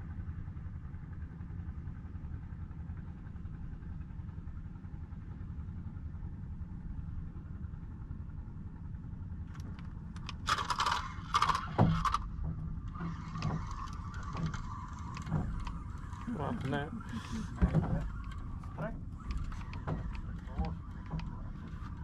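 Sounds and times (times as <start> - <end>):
low steady rumble: 0.0 - 22.0
reel whirring with ticks: 9.4 - 22.0.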